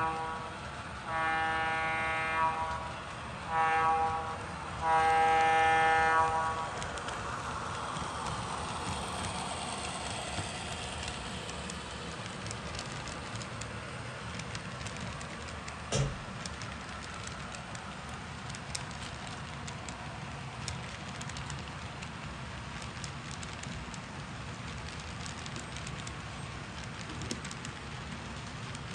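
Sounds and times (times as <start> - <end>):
model locomotive horn blasts: 0.0 - 6.9
rail cars clicking: 0.0 - 28.9
train running rumble: 0.0 - 28.9.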